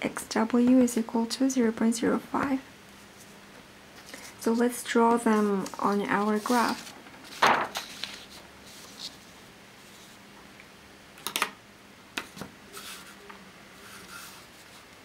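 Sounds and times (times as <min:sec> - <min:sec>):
faint steady hum: 0:00.0 - 0:15.0
paper rustling: 0:05.2 - 0:10.2.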